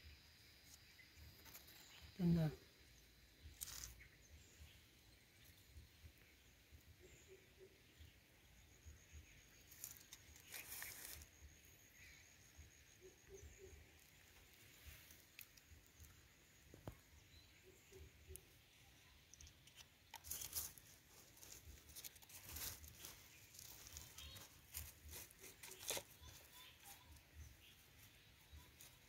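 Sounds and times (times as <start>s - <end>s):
granules pattering on dry soil: 3.4s - 4.2s, 9.2s - 11.6s, 14.0s - 17.2s, 19.3s - 29.0s
hands scraping soil: 3.5s - 4.1s, 9.7s - 11.4s, 19.4s - 29.0s.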